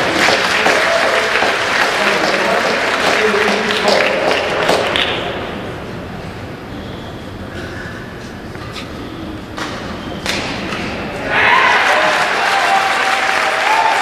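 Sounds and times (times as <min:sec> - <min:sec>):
crowd applauding and cheering: 0:00.0 - 0:05.1, 0:11.3 - 0:14.0.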